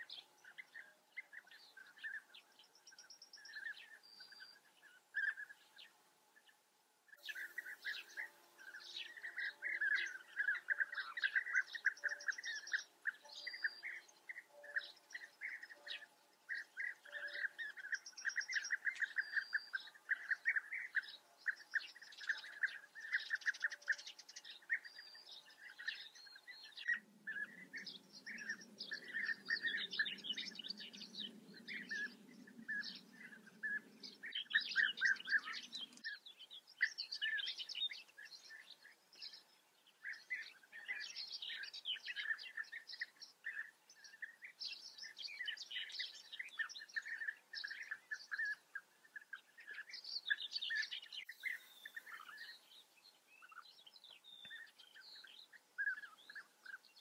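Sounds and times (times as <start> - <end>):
bee-eaters calling: 7.3 - 24.9, 26.8 - 36.1.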